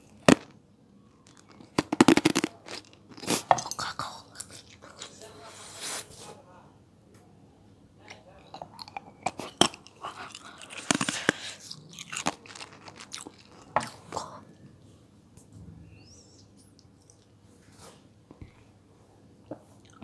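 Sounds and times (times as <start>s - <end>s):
wet chewing mouth clicks: 8.8s - 14.2s.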